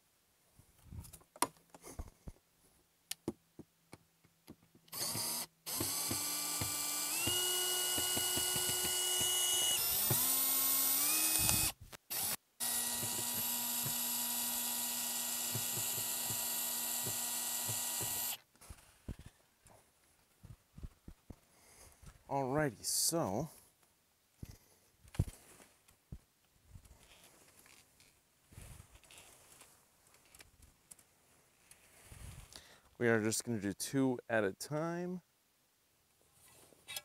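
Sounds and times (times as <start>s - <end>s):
cordless screwdriver motor whining: 4.9s - 18.4s.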